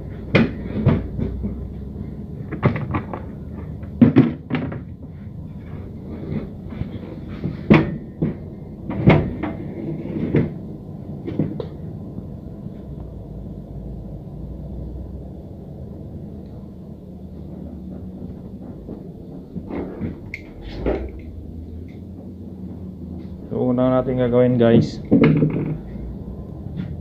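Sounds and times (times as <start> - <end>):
low steady rumble: 0.0 - 27.0
knocks on a workbench: 25.1 - 25.8.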